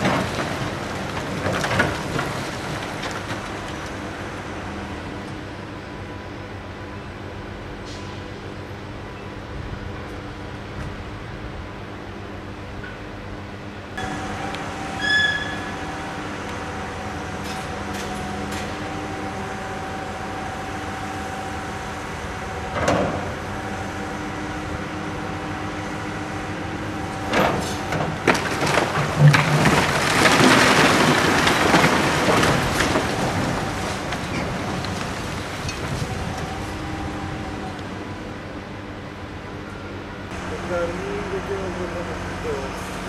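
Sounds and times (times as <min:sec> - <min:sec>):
rubble crashing down: 0:00.0 - 0:04.0, 0:27.3 - 0:36.4
excavator engine running: 0:08.6 - 0:43.0.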